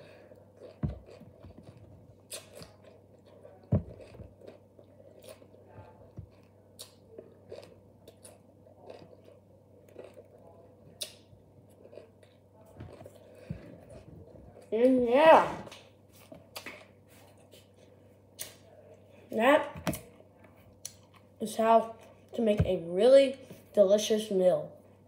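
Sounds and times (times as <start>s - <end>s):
person chewing crunchy pepper: 0.0s - 14.7s.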